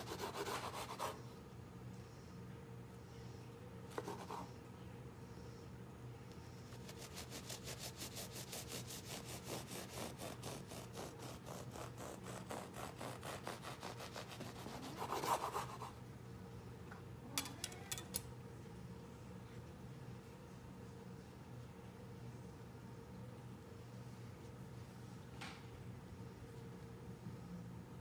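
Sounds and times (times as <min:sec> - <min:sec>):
bread knife sawing through loaf: 0:00.0 - 0:01.2, 0:06.7 - 0:16.0
knife scrape: 0:06.7 - 0:16.0.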